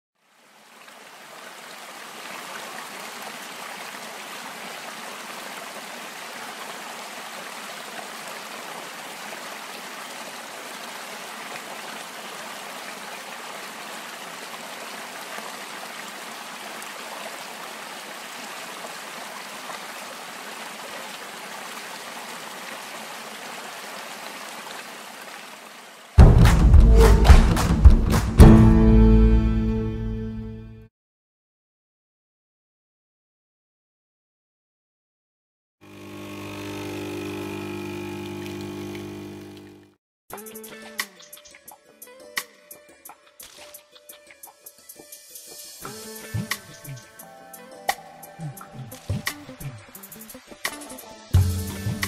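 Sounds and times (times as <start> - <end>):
stream rushing over rocks: 0.3 - 26.2
loud music with deep bass: 26.2 - 29.2, 51.4 - 52.0.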